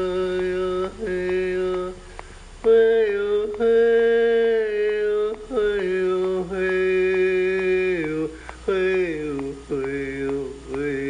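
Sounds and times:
person chanting long tones: 0:00.0 - 0:11.0.

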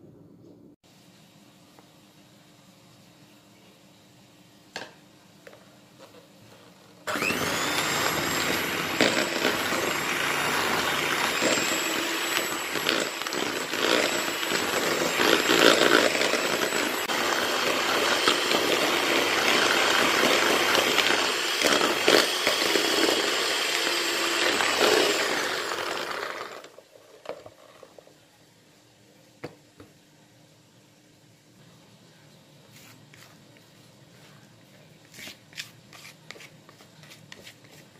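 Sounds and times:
electric hand mixer whining: 0:07.1 - 0:27.4.

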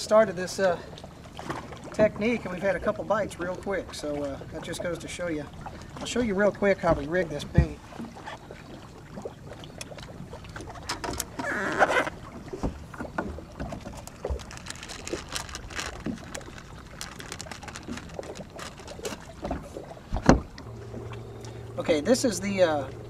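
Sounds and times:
short rustle: 0:13.7 - 0:20.3.

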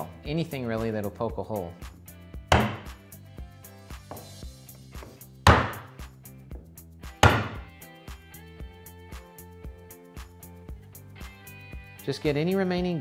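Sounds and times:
background music with steady beat: 0:00.0 - 0:13.0
hammer striking an awl: 0:02.5 - 0:03.0, 0:05.4 - 0:06.0, 0:07.2 - 0:07.7.

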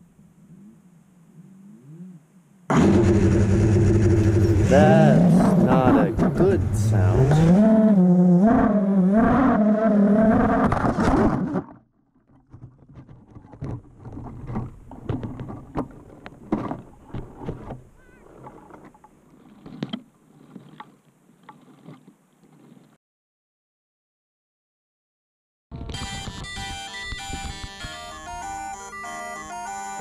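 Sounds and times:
drone crashing into tree: 0:02.7 - 0:04.8.

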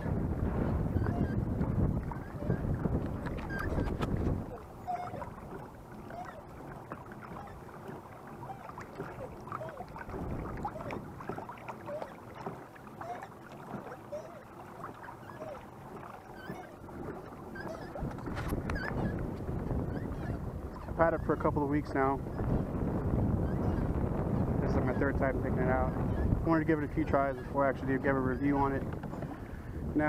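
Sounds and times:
water splashing against kayak hull: 0:00.0 - 0:30.0
wind rumble on microphone: 0:00.0 - 0:30.0.

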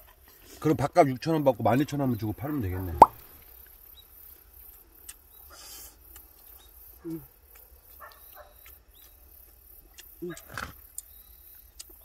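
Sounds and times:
low voice humming: 0:07.0 - 0:07.3.

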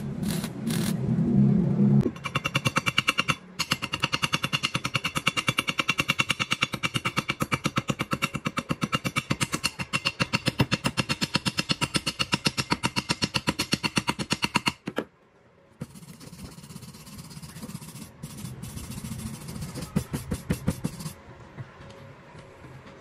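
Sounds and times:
wire brush scrubbing metal: 0:15.8 - 0:21.2.

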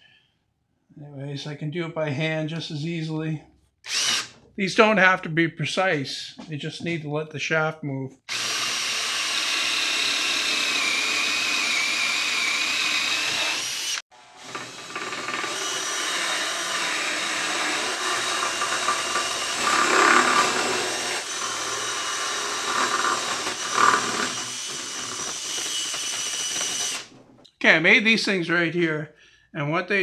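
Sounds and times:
electric drill boring wood: 0:03.9 - 0:04.3, 0:08.3 - 0:27.1.

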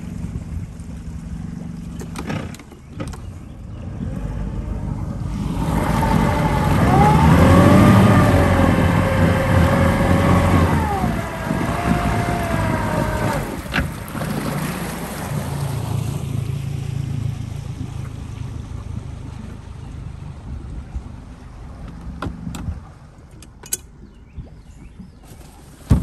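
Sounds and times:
outboard motor running: 0:00.0 - 0:26.0.

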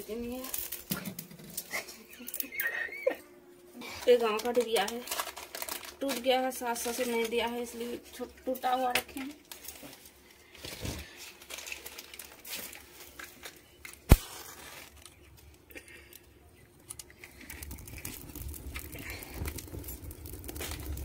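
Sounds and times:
twigs crackling as they catch fire: 0:00.0 - 0:02.7, 0:03.8 - 0:21.0
low rumble of flames: 0:16.1 - 0:21.0.

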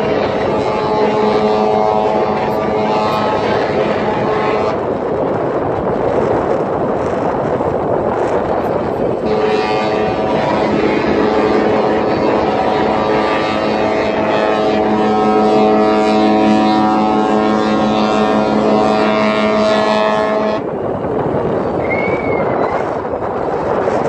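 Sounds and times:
ship horn blast: 0:00.0 - 0:05.2, 0:09.1 - 0:20.9.

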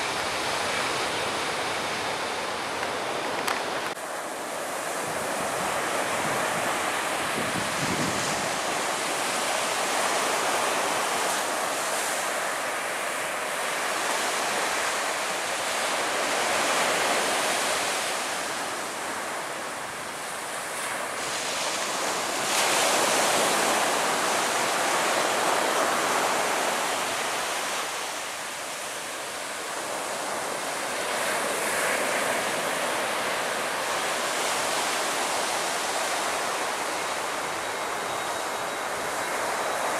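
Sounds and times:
surf washing on beach: 0:00.0 - 0:39.9
wind buffeting microphone: 0:04.8 - 0:09.4.

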